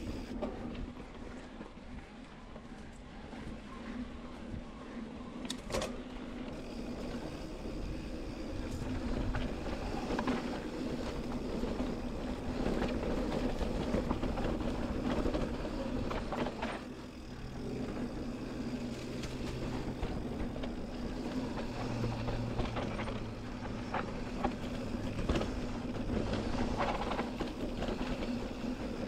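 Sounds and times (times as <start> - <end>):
steady low hum: 6.2 - 29.0.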